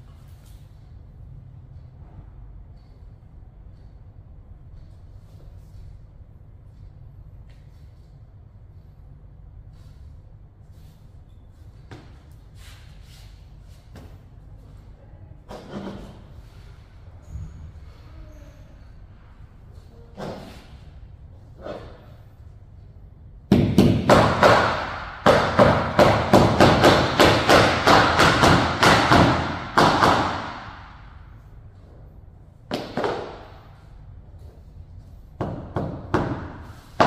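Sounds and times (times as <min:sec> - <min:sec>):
hammer striking: 0:23.5 - 0:31.1.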